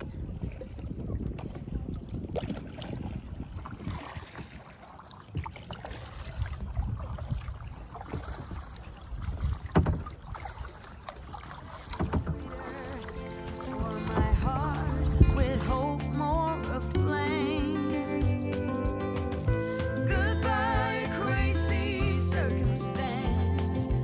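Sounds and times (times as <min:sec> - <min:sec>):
wind rumbling on microphone: 0:00.0 - 0:18.4
paddle strokes splashing: 0:00.0 - 0:18.8
sharp splash or knock: 0:08.0 - 0:15.4.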